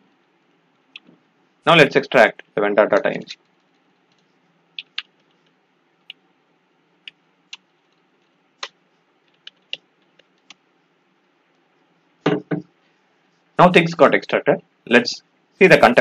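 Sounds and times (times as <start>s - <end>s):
keyboard keystrokes: 3.4s - 5.4s, 7.5s - 10.6s.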